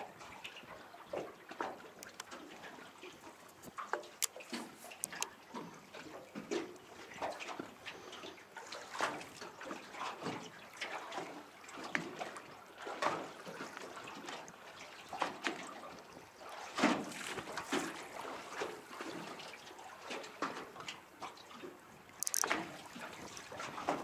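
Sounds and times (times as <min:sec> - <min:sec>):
waves lapping against boat hull: 0:00.0 - 0:24.0.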